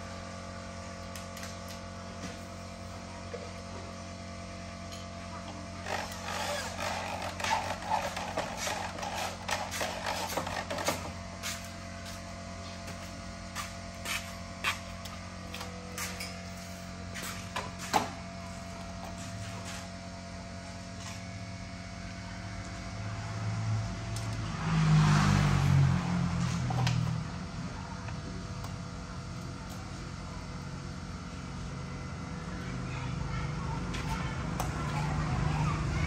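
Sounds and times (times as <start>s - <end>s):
electric drill driving screw: 5.8s - 11.7s.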